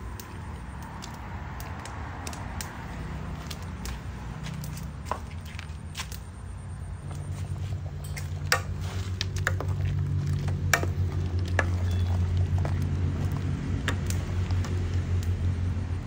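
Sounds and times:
motor engine hum: 7.0s - 16.0s
metal ladle stirring in a pot: 8.2s - 14.8s.

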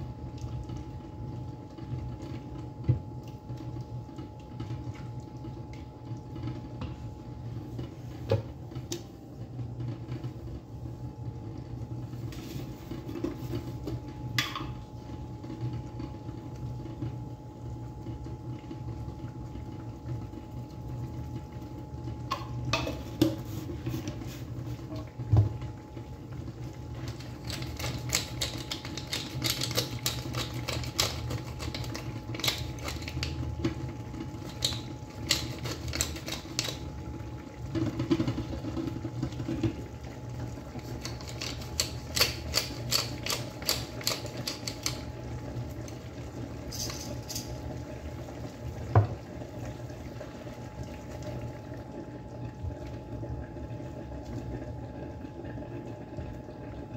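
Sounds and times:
pepper mill grinding clicks: 41.0s - 45.0s.

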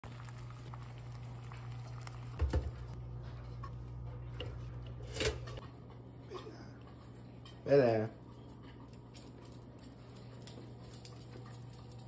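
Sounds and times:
eggs sizzling in a pan: 0.0s - 3.0s
toaster clatter: 5.0s - 5.6s.

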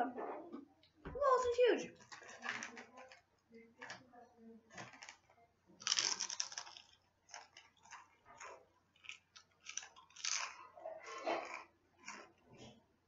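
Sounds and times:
crunching potato chip: 5.8s - 8.0s, 9.0s - 10.6s.

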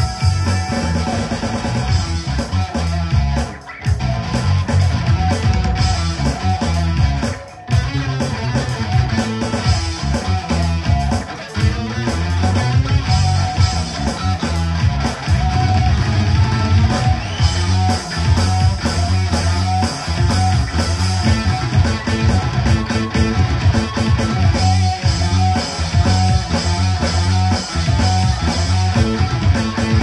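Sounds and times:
electric guitar: 0.0s - 30.0s
live rock band playing: 0.0s - 30.0s.

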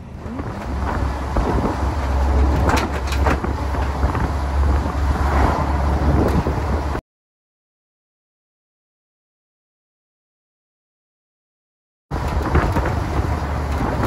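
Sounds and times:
bus engine and road noise: 0.0s - 7.0s, 12.1s - 14.0s.

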